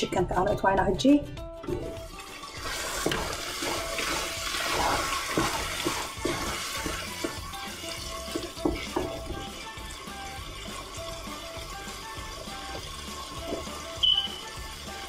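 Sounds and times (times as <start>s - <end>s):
wooden spoon stirring: 1.7s - 14.3s
sauce sizzling and bubbling: 1.8s - 15.0s
spoon knocking against pot: 8.3s - 9.5s.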